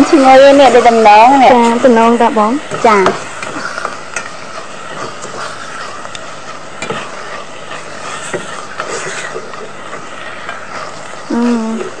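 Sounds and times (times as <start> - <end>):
food sizzling in a hot pan: 0.0 - 12.0
spoon scraping against pan: 2.6 - 12.0.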